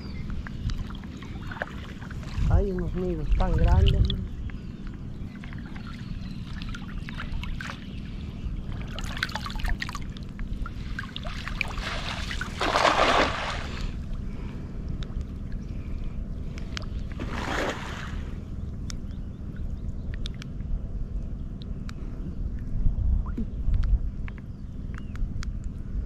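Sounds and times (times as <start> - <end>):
steady low rumble: 0.0 - 26.0
water splashing: 8.7 - 14.0, 17.2 - 18.3.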